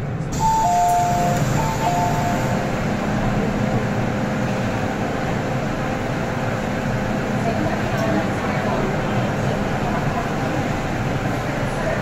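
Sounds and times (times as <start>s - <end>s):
train rumble and hiss: 0.0s - 12.0s
two-tone door chime: 0.4s - 2.6s.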